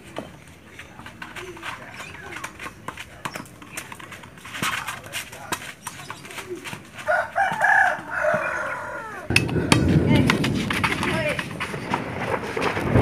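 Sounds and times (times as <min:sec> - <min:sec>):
rooster crowing: 0:07.0 - 0:09.3
thunder rumble: 0:09.3 - 0:13.0.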